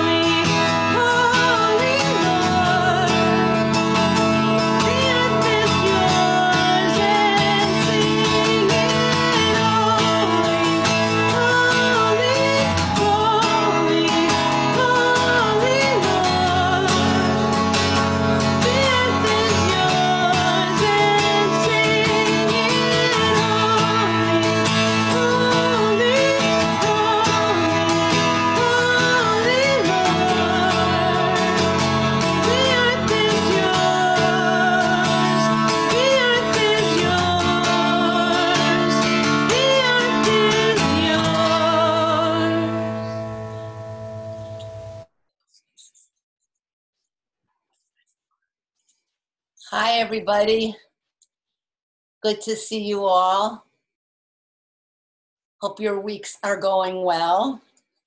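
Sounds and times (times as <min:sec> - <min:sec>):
person singing: 0:00.0 - 0:43.8
guitar accompaniment: 0:00.0 - 0:45.1.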